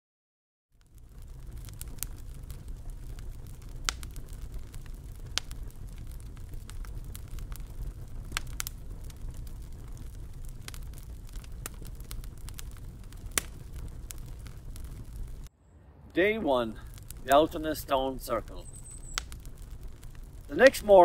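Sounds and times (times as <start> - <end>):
sharp crackles and snaps: 0.8 - 15.5, 16.1 - 21.0
low rumble: 4.4 - 20.5.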